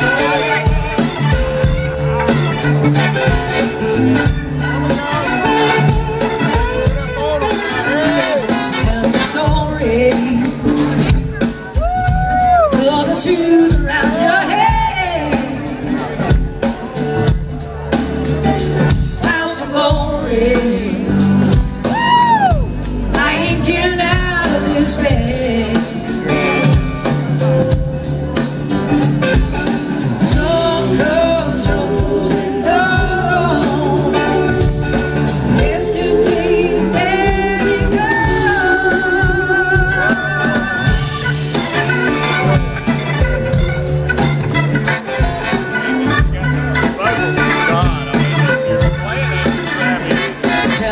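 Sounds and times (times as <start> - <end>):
blues-rock band playing: 0.0 - 50.9
woman singing: 7.9 - 11.1, 12.0 - 16.0, 19.2 - 26.6, 30.2 - 34.8, 35.4 - 41.2, 50.6 - 50.9.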